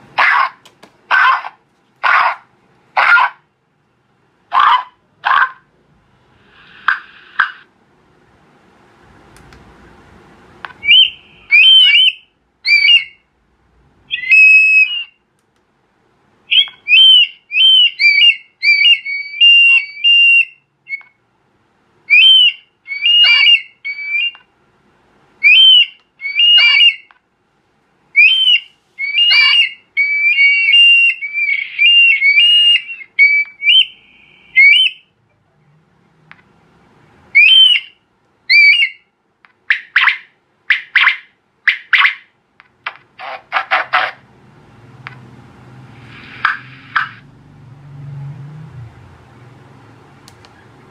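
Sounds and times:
electronic bird call whistles: 10.8 - 13.2, 14.1 - 15.2, 16.5 - 21.2, 22.1 - 24.4, 25.4 - 27.1, 28.2 - 35.2, 37.4 - 39.1.

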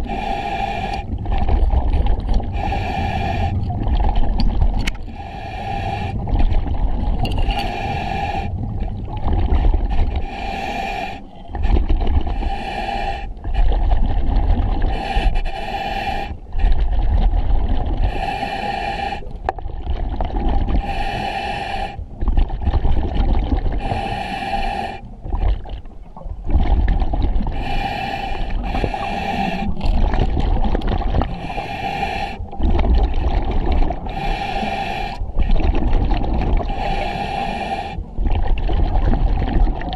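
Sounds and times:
regulator inhalation hiss: 0.1 - 1.1, 2.6 - 3.6, 5.2 - 6.2, 7.4 - 8.5, 10.2 - 11.3, 12.4 - 13.4, 15.0 - 16.4, 18.1 - 19.3, 20.8 - 22.0, 23.8 - 25.1, 27.6 - 29.8, 31.4 - 32.5, 34.1 - 35.2, 36.7 - 38.1
exhalation bubbling: 28.6 - 34.3, 35.3 - 37.0, 37.8 - 39.9.

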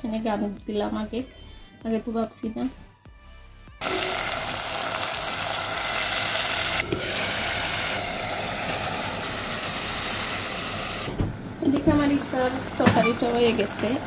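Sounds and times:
hot oil sizzling in a pot: 3.8 - 14.0.

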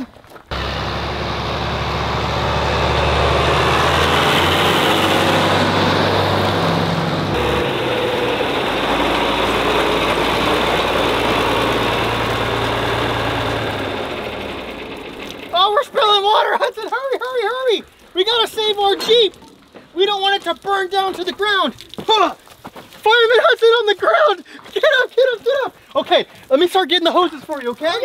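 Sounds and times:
tractor engine running: 0.5 - 22.2.

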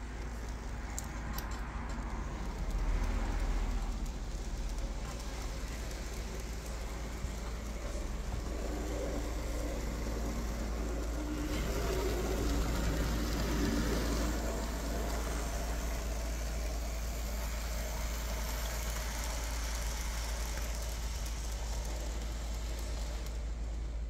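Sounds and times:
wheels rolling on track: 0.0 - 24.0
steady low hum: 2.2 - 24.0
tiny electric motor whine: 5.0 - 23.5.

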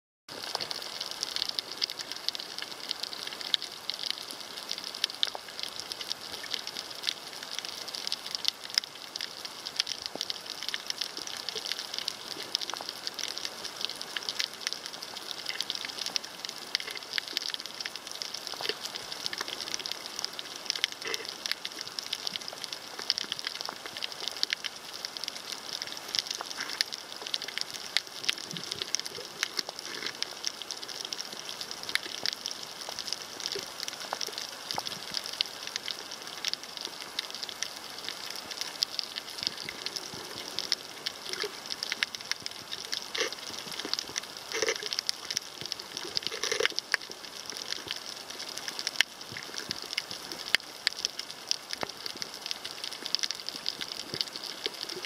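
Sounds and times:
underwater coral reef crackling: 0.3 - 55.0.

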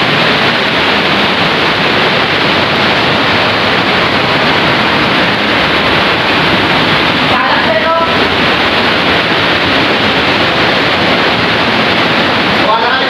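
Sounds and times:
rushing flowing water: 0.0 - 13.0.

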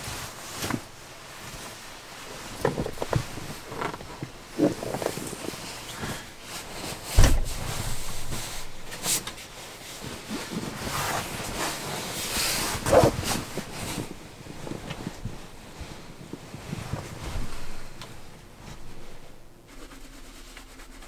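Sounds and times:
fabric rustling: 0.0 - 21.0
heavy thump: 7.0 - 9.2.

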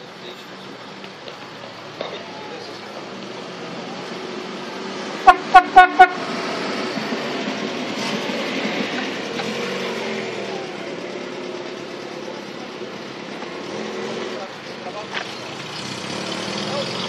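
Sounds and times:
engine and traffic noise: 0.0 - 17.0
car horn toots: 5.2 - 6.2.

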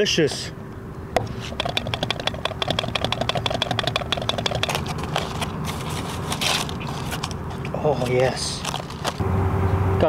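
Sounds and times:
whisk clicking in ceramic bowl: 1.5 - 4.9
aluminium foil crinkle: 4.7 - 7.4, 8.4 - 9.2.

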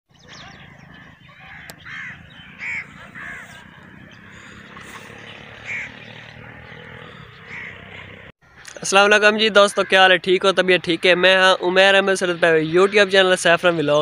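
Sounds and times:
crows cawing: 0.3 - 10.3.

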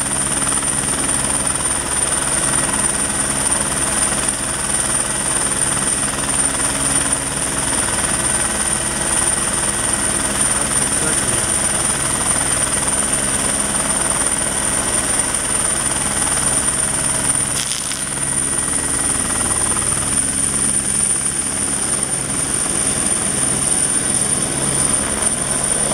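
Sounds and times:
helicopter rotor beat: 0.0 - 25.9
high steady whine: 5.3 - 25.9.

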